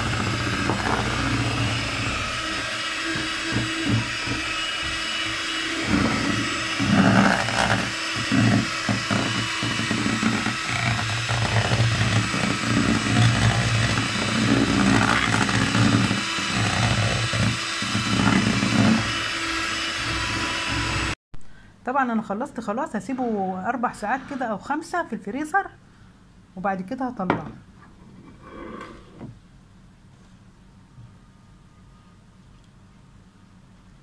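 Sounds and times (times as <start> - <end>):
electric hand mixer whisking liquid: 0.0 - 21.2.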